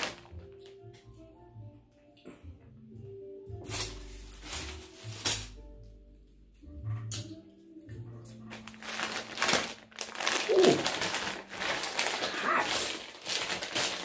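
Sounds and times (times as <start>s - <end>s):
snack bag crinkling: 0.0s - 0.8s, 8.4s - 14.0s.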